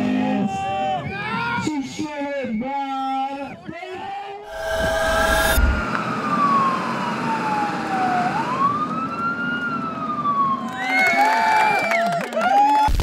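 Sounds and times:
other sliding tones: 4.5s - 5.9s
ambulance siren wailing: 5.2s - 11.4s.

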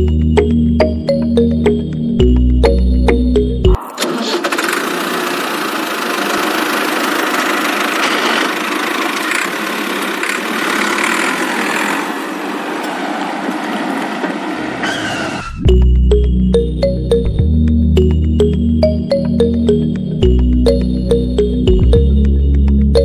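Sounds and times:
toy tractor motor whirring: 3.9s - 12.3s.

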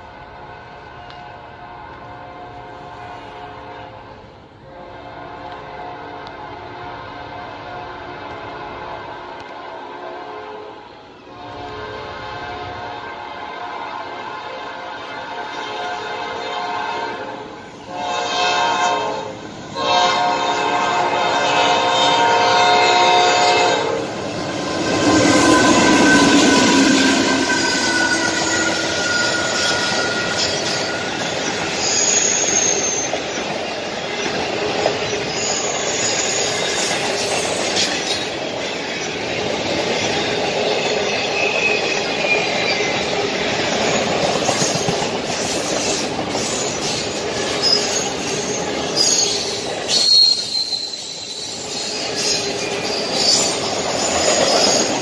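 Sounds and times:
locomotive horn: 0.0s - 31.3s
train rumbling and clacking: 0.0s - 55.0s
train wheels squealing: 24.2s - 55.0s.

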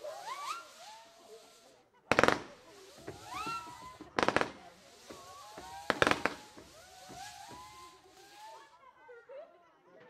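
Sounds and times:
firework whistles gliding: 0.0s - 8.8s
firework pops: 2.1s - 8.4s.

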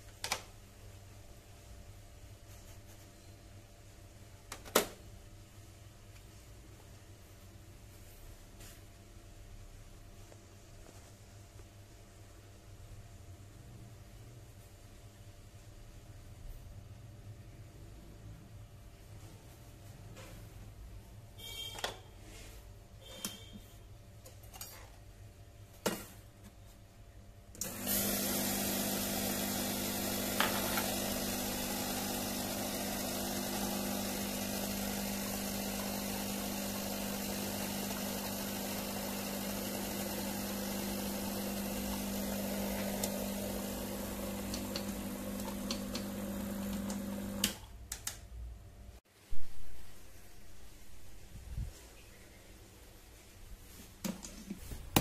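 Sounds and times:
espresso machine pump humming: 27.6s - 47.6s.

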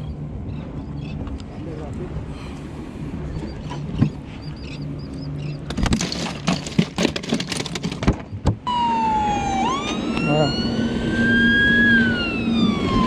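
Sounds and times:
wailing siren-like tone: 8.7s - 13.0s.

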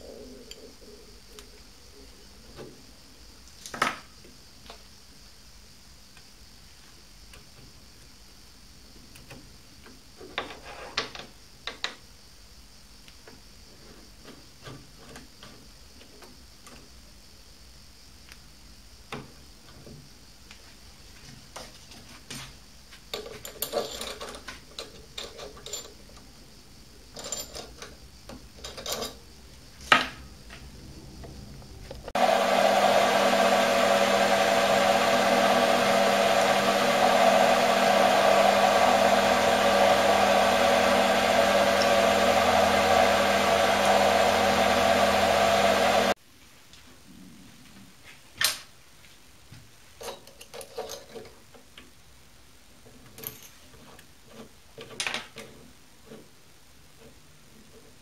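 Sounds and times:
metal parts clicking and knocking: 23.2s - 26.2s, 28.6s - 29.2s, 50.0s - 51.6s
lathe motor running: 32.2s - 46.2s.

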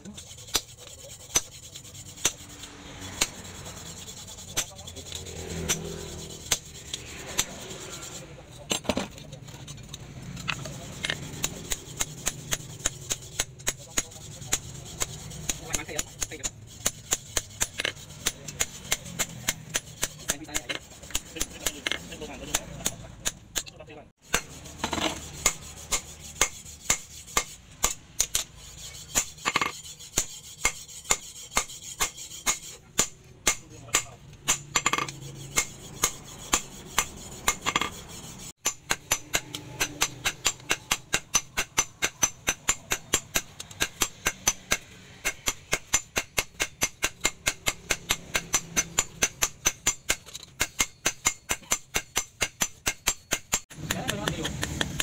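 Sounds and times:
hammer striking metal on anvil: 11.0s - 38.0s, 38.6s - 55.0s.

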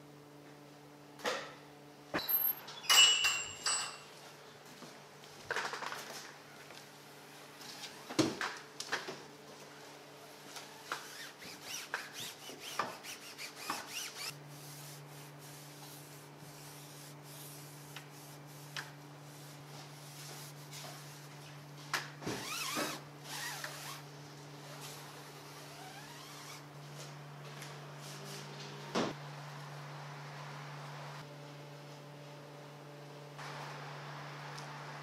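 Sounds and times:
cloth rubbing on rubber tyre: 10.9s - 18.7s, 22.4s - 24.0s, 24.7s - 26.6s.

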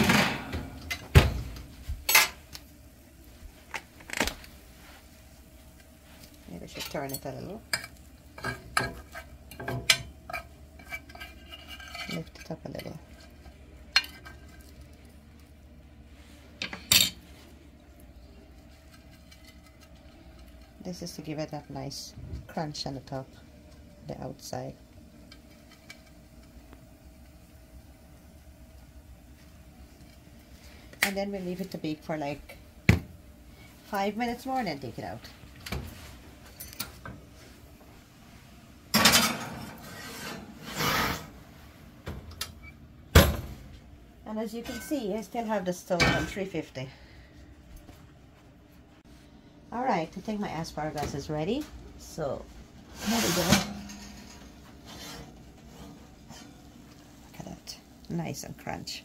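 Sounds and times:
glass dish scraping on oven rack: 39.0s - 41.4s, 52.9s - 56.6s.

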